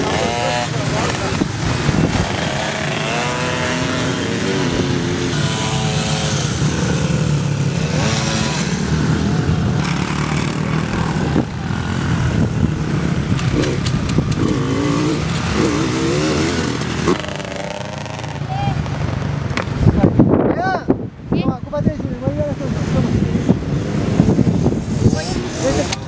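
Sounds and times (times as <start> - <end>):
dirt bike engines revving: 0.0 - 26.0.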